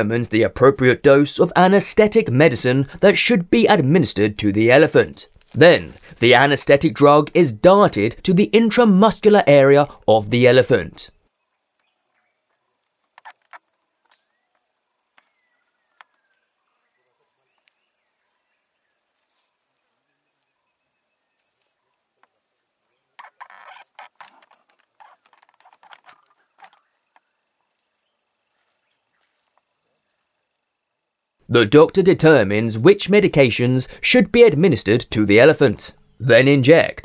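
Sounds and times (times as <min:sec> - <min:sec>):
insects droning: 0:00.0 - 0:37.0
dry brush crackling and rustling: 0:05.3 - 0:06.2.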